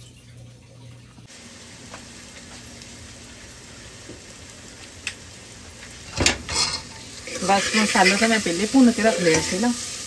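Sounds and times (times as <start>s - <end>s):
spices sizzling in oil: 1.2s - 10.0s.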